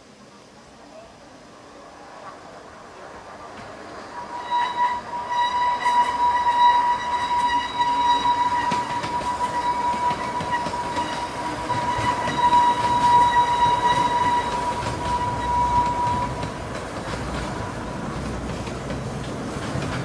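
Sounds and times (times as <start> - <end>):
train wheels squealing: 3.9 - 16.6.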